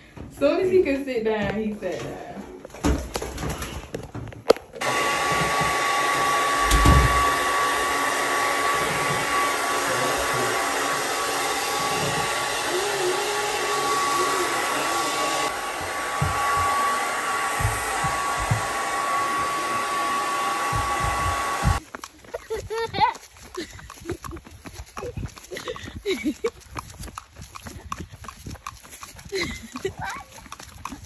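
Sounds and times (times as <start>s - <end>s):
hair dryer blowing: 4.8s - 21.8s.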